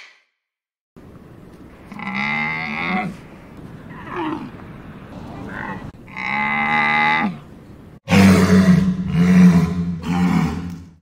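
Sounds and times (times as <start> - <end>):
deep walrus roars: 1.9 - 3.2, 3.9 - 7.4, 8.1 - 10.7
camel groaning call: 1.9 - 7.5.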